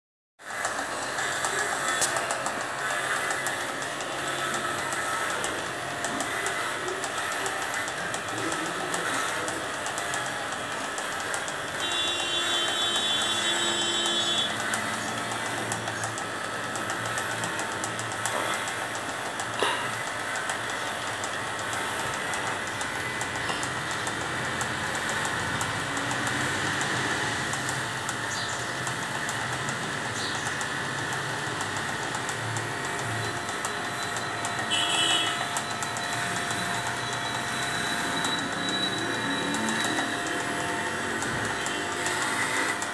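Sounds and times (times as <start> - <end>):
blades ticking in fur: 0.4 - 42.9
electric hair clippers buzzing: 0.4 - 42.9
high steady tone: 33.0 - 42.9.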